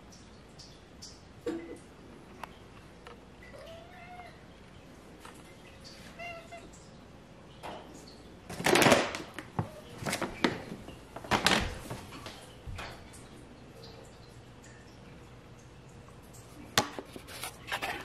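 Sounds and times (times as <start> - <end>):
cat meowing: 3.5 - 4.4, 6.1 - 6.7
plastic bag rustling: 8.5 - 12.4.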